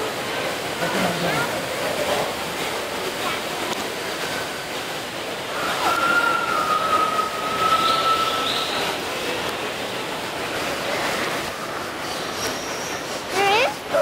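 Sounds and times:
rushing falling water: 0.0s - 14.0s
whistle-like tone: 5.6s - 8.8s.

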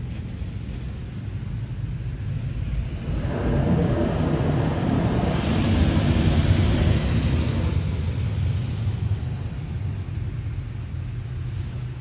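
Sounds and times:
water jets spraying a car: 0.1s - 12.0s
spray hiss: 3.1s - 10.4s.

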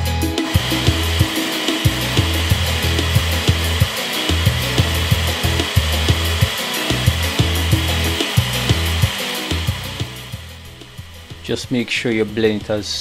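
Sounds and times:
blender motor running: 0.2s - 13.0s.

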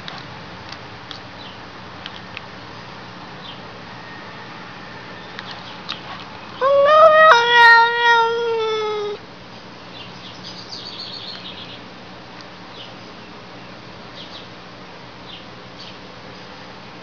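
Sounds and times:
cat meowing: 6.6s - 9.2s.

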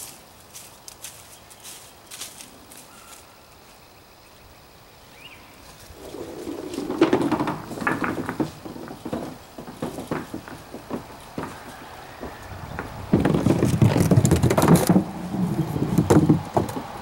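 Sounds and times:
bowling ball rolling on wood: 5.8s - 17.0s
clattering knocks: 5.9s - 17.0s.

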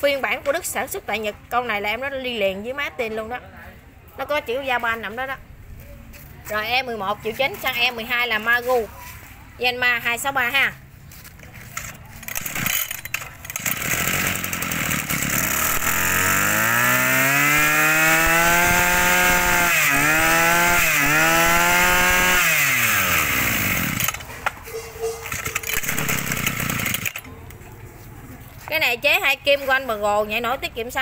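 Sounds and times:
recoil cord pulled: 11.3s - 24.3s, 25.2s - 27.3s
brush cutter engine running: 11.7s - 24.3s, 25.2s - 27.3s.

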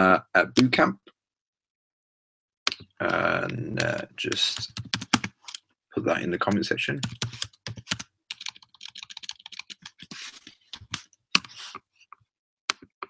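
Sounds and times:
computer keyboard typing: 2.7s - 5.6s, 6.4s - 11.7s.

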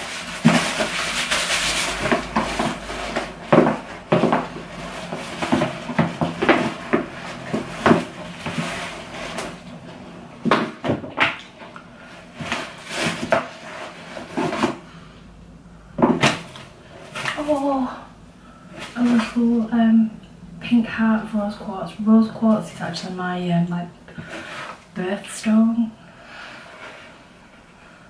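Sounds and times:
tissue paper rustling: 0.0s - 9.7s, 12.3s - 14.8s.

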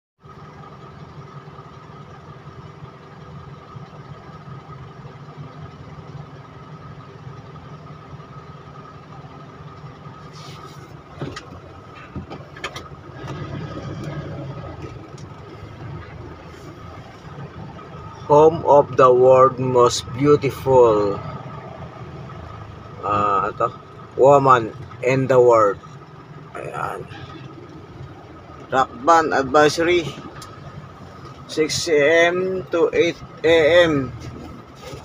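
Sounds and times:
vehicle engine humming: 0.2s - 35.0s.

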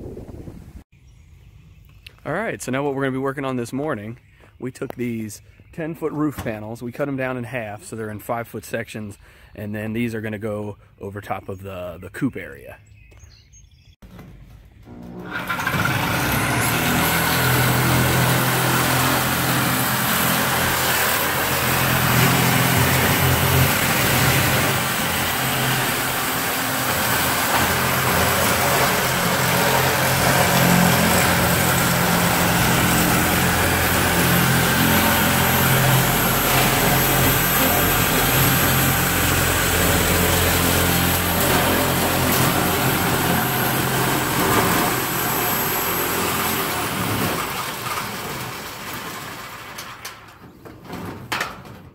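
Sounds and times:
electric metal shears cutting: 14.8s - 50.2s.

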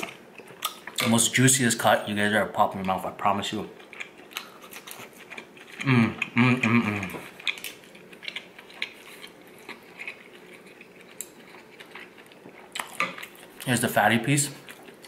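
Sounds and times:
chewing: 3.7s - 13.7s, 14.6s - 15.0s
man humming with pleasure: 5.8s - 7.2s.

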